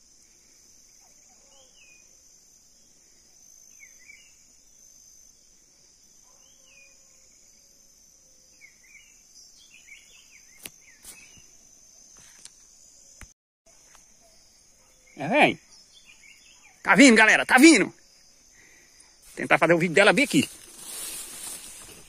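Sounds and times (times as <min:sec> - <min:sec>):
insects droning: 0:00.0 - 0:22.0
bird chirps: 0:14.2 - 0:17.4.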